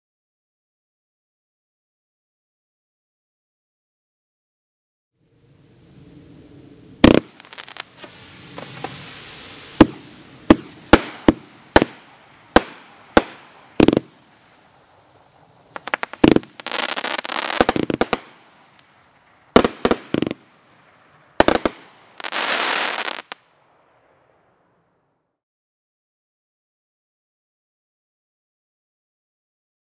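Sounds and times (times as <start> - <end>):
firework crackling: 5.3 - 24.4
firework bangs: 7.0 - 24.2.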